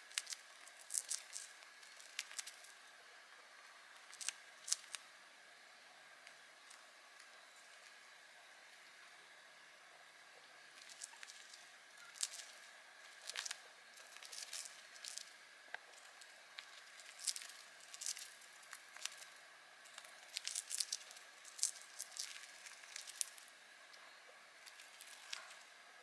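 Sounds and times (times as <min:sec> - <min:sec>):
bird beak shredding wood chip: 0:00.0 - 0:02.8, 0:04.0 - 0:05.0, 0:10.7 - 0:15.4, 0:16.0 - 0:23.5, 0:24.6 - 0:25.7.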